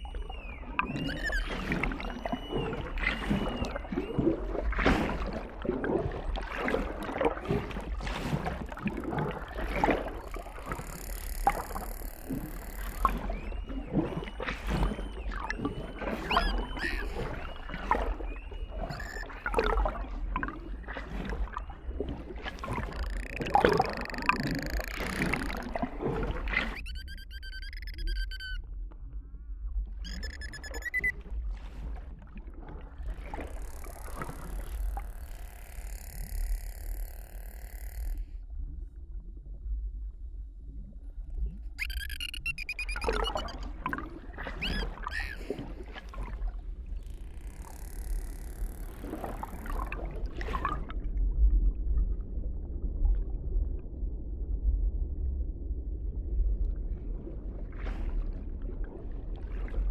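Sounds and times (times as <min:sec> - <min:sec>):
dolphin whistles: 0:00.0 - 0:04.7, 0:09.4 - 0:20.0, 0:21.1 - 0:25.8, 0:26.5 - 0:28.6, 0:30.0 - 0:31.2, 0:33.3 - 0:38.3, 0:41.8 - 0:43.8, 0:44.4 - 0:45.7, 0:47.0 - 0:49.9
dolphin clicks: 0:00.2 - 0:03.8, 0:08.6 - 0:13.6, 0:14.6 - 0:17.7, 0:18.8 - 0:19.9, 0:22.5 - 0:25.9, 0:26.5 - 0:28.6, 0:30.0 - 0:31.2, 0:33.2 - 0:38.3, 0:41.8 - 0:43.7, 0:44.5 - 0:45.6, 0:47.0 - 0:50.0.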